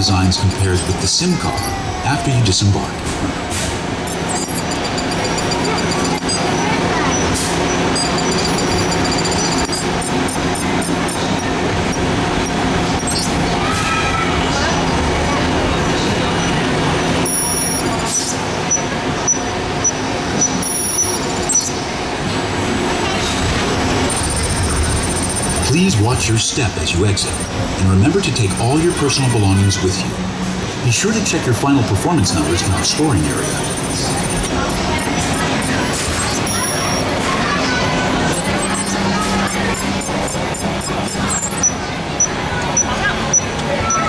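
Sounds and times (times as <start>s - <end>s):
ride vehicle rumbling on track: 0.0s - 44.0s
short high beeps: 4.1s - 6.6s, 7.9s - 11.2s, 17.2s - 21.7s, 24.1s - 25.8s, 33.3s - 37.2s, 38.3s - 44.0s.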